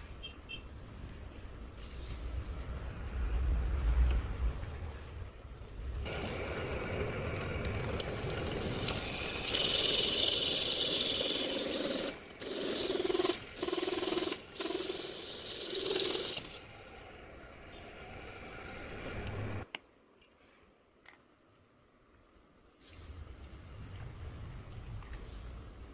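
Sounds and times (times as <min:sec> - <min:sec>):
pillar drill grinding through steel: 0:06.1 - 0:16.6.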